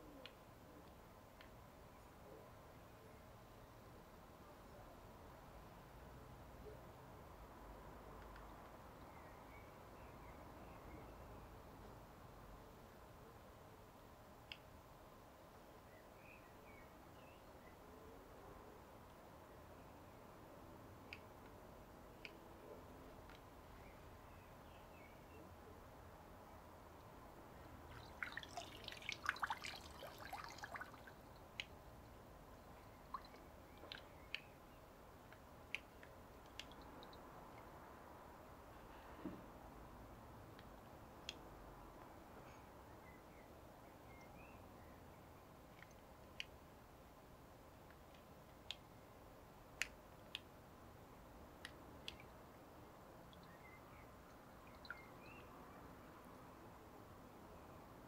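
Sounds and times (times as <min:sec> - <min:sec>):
faint steady hiss: 0:00.0 - 0:58.0
water drips: 0:27.0 - 0:34.6, 0:35.3 - 0:37.8, 0:45.7 - 0:46.5, 0:51.6 - 0:52.5, 0:53.2 - 0:55.4
pool water splashing underwater: 0:27.9 - 0:31.2.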